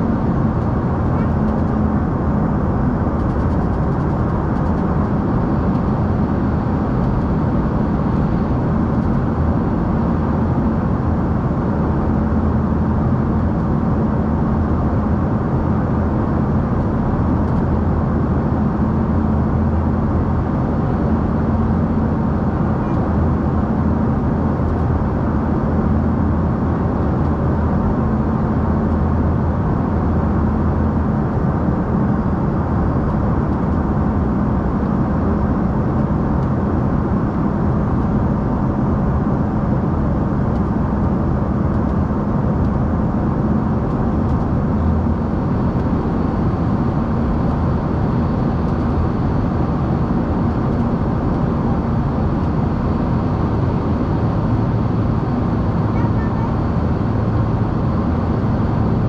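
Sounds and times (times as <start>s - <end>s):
jet engines and rushing air: 0.0s - 59.0s.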